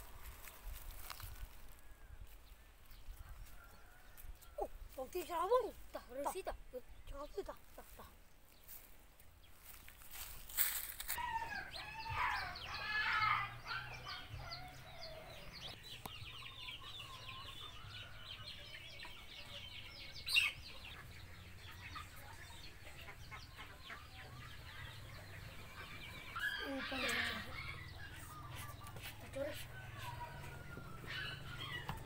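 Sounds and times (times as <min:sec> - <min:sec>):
ducks quacking: 0:20.4 - 0:29.1.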